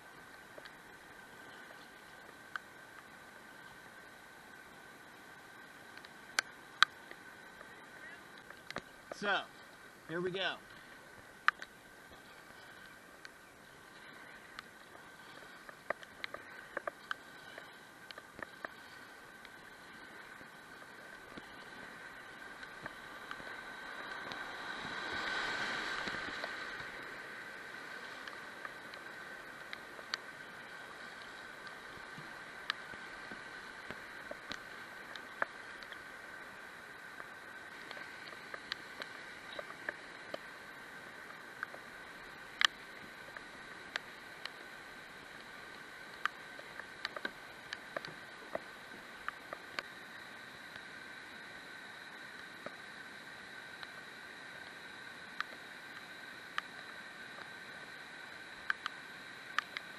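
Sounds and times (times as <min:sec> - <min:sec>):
rushing whitewater: 0:00.0 - 0:59.9
sharp ticks: 0:11.4 - 0:11.8, 0:42.4 - 0:44.6, 0:45.4 - 0:50.9, 0:58.6 - 0:59.9.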